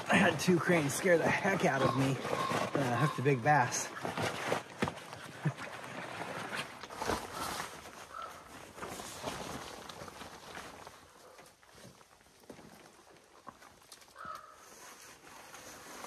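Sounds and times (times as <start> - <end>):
rain clothes rustling: 0.0 - 12.0.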